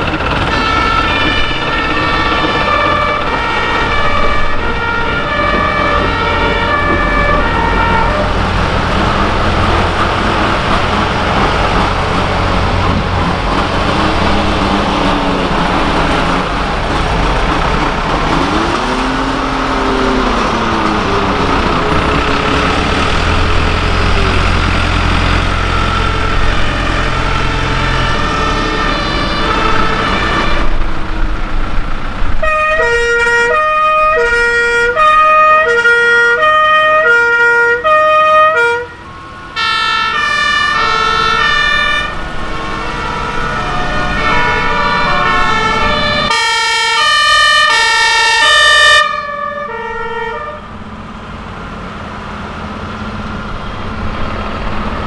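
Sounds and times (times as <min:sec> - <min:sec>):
two-tone sirens: 0:00.0 - 0:31.4, 0:32.4 - 0:51.4
fire truck engine running: 0:00.0 - 0:55.0.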